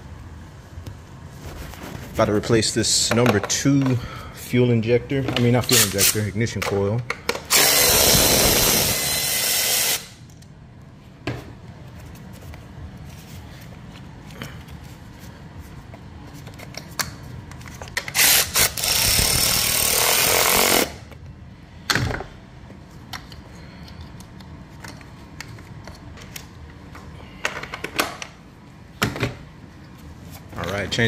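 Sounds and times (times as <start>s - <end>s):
cordless electric ratchet whirring: 7.5s - 10.2s, 18.1s - 21.0s.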